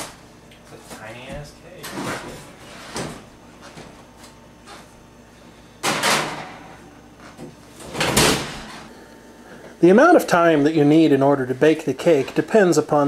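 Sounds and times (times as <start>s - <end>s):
oven door shutting with clunk: 7.8s - 8.9s.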